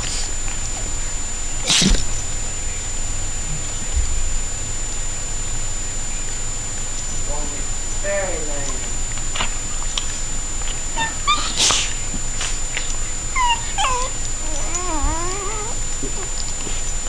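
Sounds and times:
dog whining: 1.6s - 2.1s, 10.9s - 16.8s
dogs yipping and whimpering: 10.9s - 12.0s, 12.8s - 16.5s.

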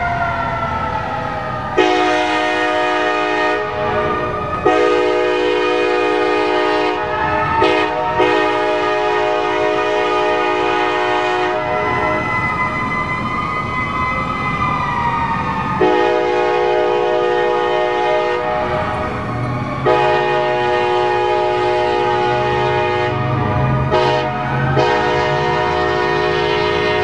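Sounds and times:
mechanical siren winding down: 0.0s - 2.5s, 11.5s - 16.2s
locomotive air horn blasts: 1.8s - 12.3s, 15.8s - 18.9s, 19.8s - 27.0s.

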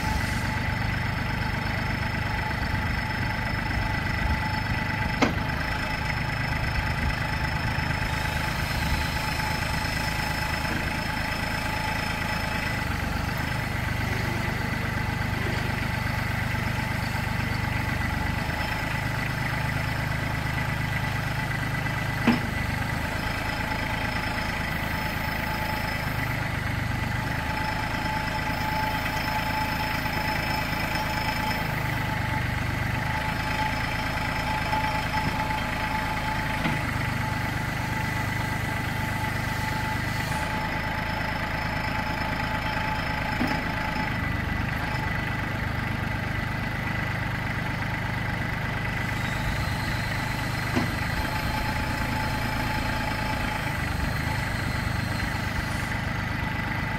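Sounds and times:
hydraulics moving loader bucket: 0.0s - 56.9s
tractor engine idling: 0.0s - 56.9s.

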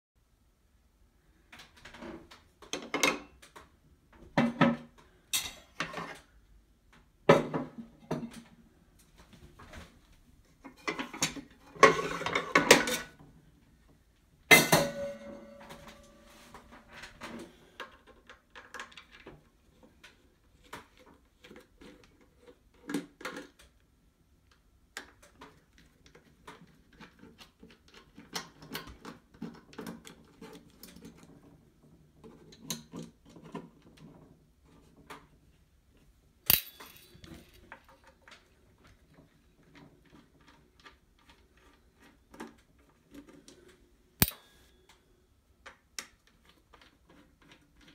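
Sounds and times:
metallic clang: 14.5s - 16.6s, 36.5s - 37.4s.

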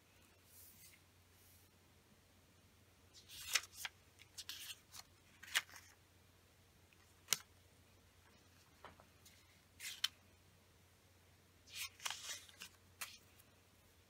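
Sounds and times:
paper rustling: 3.2s - 6.0s, 8.2s - 10.2s, 11.7s - 13.4s.

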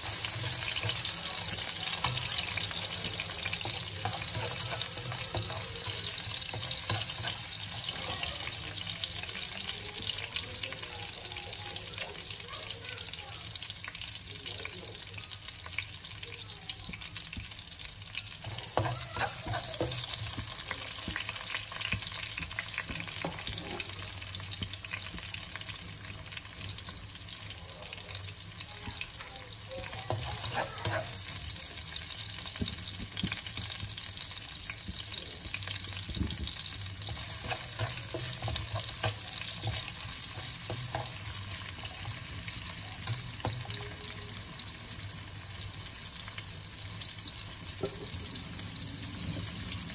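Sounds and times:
spatula scraping pan: 0.0s - 8.6s, 18.4s - 24.0s, 30.0s - 31.6s, 35.9s - 43.8s
garlic and onion sizzling in oil: 0.0s - 49.9s.

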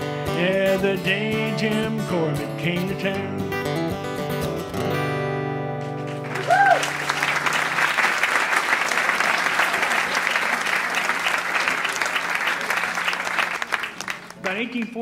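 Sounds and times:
acoustic guitar chord ringing: 0.0s - 6.3s
audience applause: 6.0s - 15.0s.

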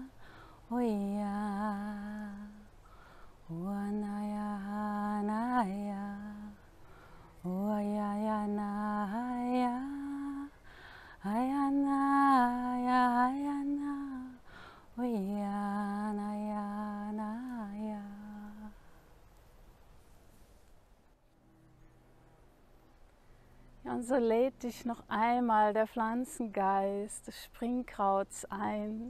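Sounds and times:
woman singing wordless phrases: 0.0s - 2.8s, 3.4s - 6.7s, 7.4s - 10.6s, 11.2s - 18.8s, 23.8s - 29.0s
breaths: 0.2s - 0.7s, 2.8s - 3.5s, 6.7s - 7.4s, 10.6s - 11.2s, 14.4s - 15.0s.

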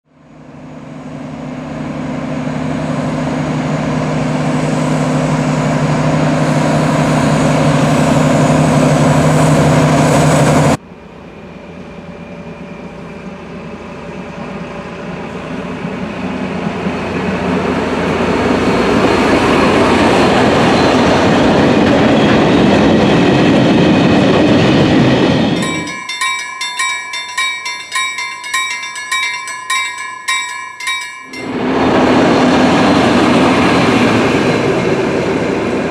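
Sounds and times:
freight train passing: 11.5s - 35.9s
level-crossing bell ringing: 25.6s - 32.4s.

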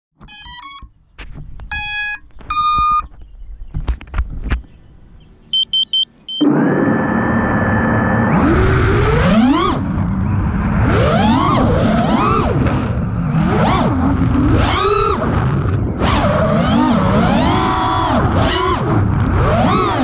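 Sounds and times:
drone electronics beeping: 0.2s - 1.0s, 1.7s - 3.1s, 5.5s - 16.0s
drone motors whining: 6.3s - 20.0s.

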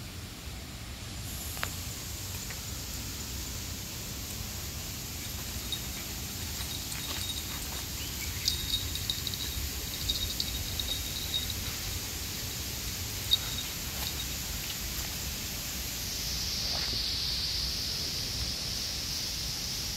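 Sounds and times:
steady high hiss: 0.0s - 19.9s
high clicking chirps: 5.2s - 12.0s, 12.9s - 14.4s.

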